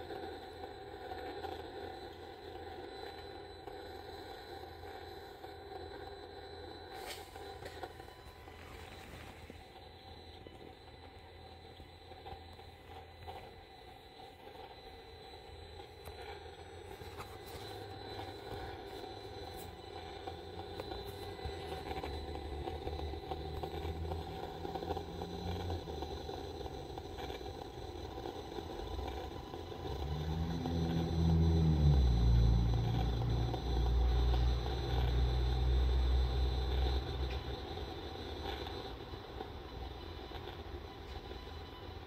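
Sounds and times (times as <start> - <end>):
low mechanical drone: 0.0 - 42.0
deeper drone with dropping pitch: 30.0 - 37.3.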